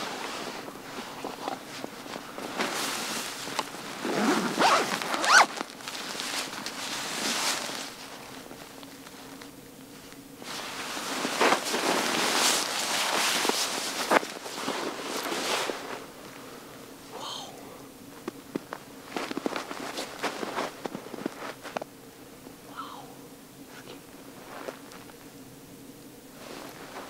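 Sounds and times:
rustling: 0:00.0 - 0:17.1, 0:17.8 - 0:22.0, 0:23.7 - 0:25.6, 0:26.2 - 0:27.0
zipper being pulled: 0:04.0 - 0:05.6.

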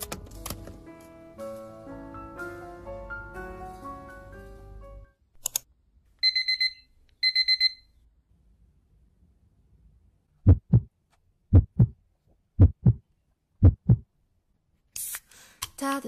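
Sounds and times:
electronic alarm beeping: 0:06.2 - 0:07.9
low heartbeat-like thumps: 0:10.4 - 0:10.9, 0:11.5 - 0:12.0, 0:12.6 - 0:13.0, 0:13.6 - 0:14.1.

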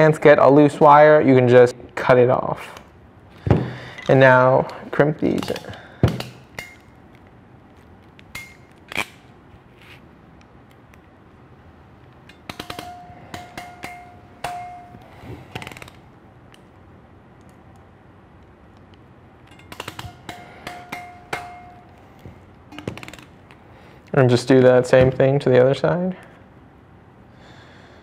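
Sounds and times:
short metallic ring: 0:12.3 - 0:15.2, 0:19.5 - 0:22.1, 0:22.7 - 0:23.3.

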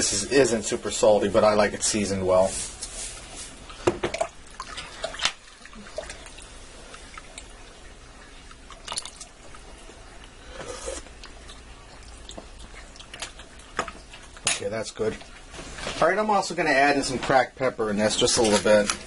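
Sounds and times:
liquid sloshing: 0:03.6 - 0:16.1.

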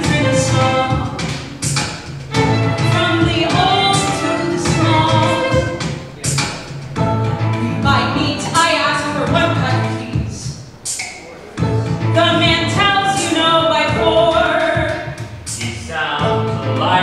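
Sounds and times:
violin: 0:00.0 - 0:10.4
electronic backing low tone: 0:02.2 - 0:10.6, 0:11.2 - 0:17.0
person singing opera: 0:02.8 - 0:06.4, 0:16.0 - 0:17.0.

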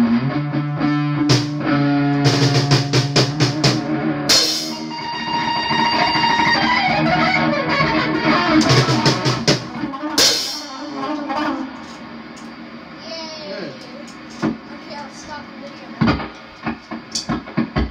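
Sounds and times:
drum kit playing: 0:00.0 - 0:17.9
electric guitar playing rock: 0:00.0 - 0:17.9
cymbal crash: 0:01.3 - 0:06.7, 0:08.6 - 0:12.2.

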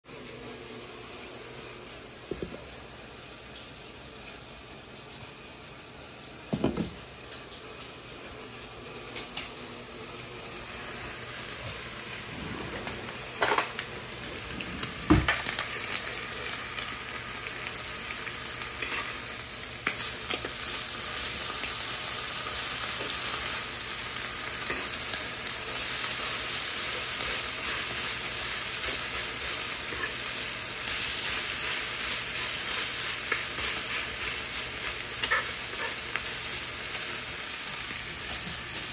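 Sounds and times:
meat sizzling on griddle: 0:08.3 - 0:38.9.

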